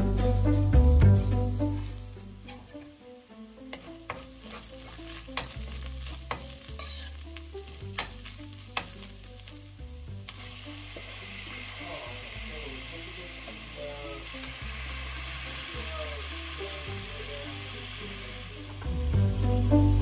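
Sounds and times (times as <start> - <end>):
shrimp sizzling in hot oil: 0.0 - 20.0
spoon scraping onions in a pan: 0.4 - 3.0, 3.7 - 11.8
spoon clicking against pan: 5.4 - 5.6, 7.9 - 9.1.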